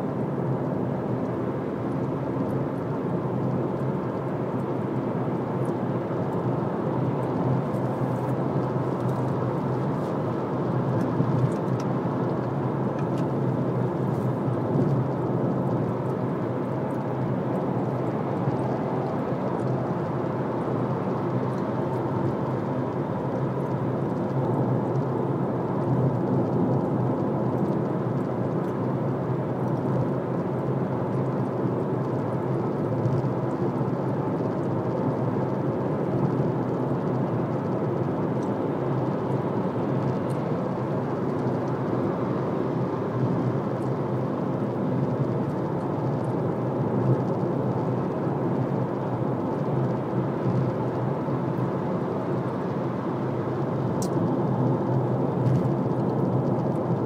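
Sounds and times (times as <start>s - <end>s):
low engine hum: 0.0s - 57.0s.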